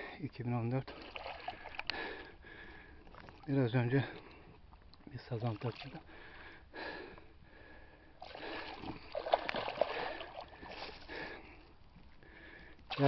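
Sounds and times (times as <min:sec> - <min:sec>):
fish splashing at water surface: 0:08.2 - 0:11.2.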